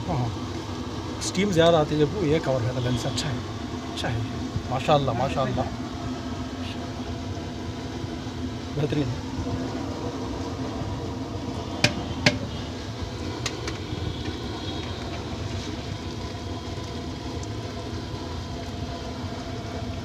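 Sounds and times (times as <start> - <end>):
steady background hum: 0.0 - 20.0
metal strainer knocking on pot: 11.8 - 12.5.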